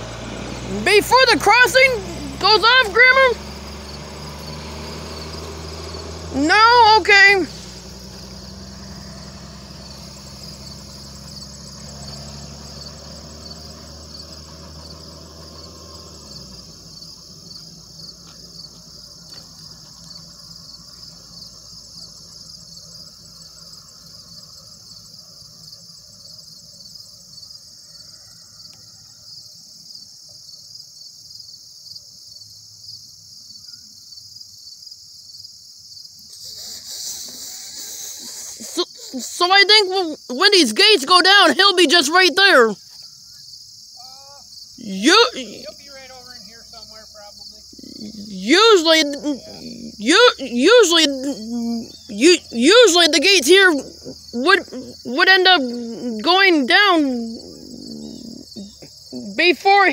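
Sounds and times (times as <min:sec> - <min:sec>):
low engine hum: 0:00.0 - 0:29.8, 0:44.0 - 0:59.9
insects trilling: 0:00.0 - 0:59.9.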